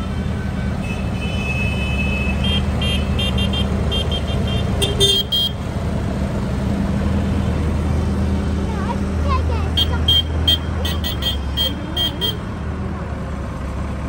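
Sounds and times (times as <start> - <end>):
diesel tractor engines running: 0.0 - 14.0
high-pitched horn toots: 9.7 - 12.5.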